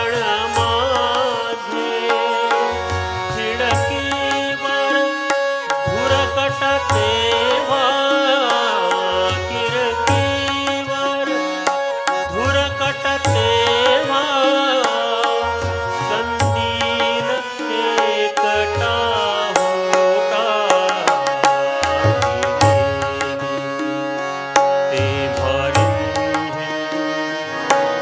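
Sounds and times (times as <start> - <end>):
man singing: 0.0 - 28.0
steady held notes: 0.0 - 28.0
tabla strokes: 20.9 - 23.6.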